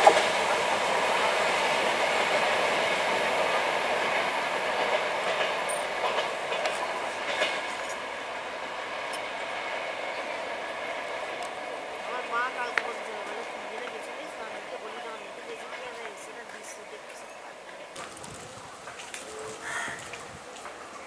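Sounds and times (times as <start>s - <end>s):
sharp clicks over rails: 0.0s - 8.1s, 10.8s - 12.0s, 17.9s - 19.3s
train wheels rumbling on rails: 0.0s - 21.0s.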